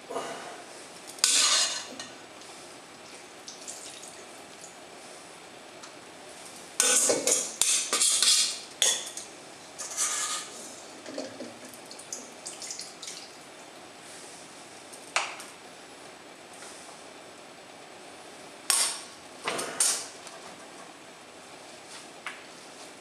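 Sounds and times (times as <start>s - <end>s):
utensil scraping steel bowl: 1.2s - 2.0s, 9.8s - 10.6s.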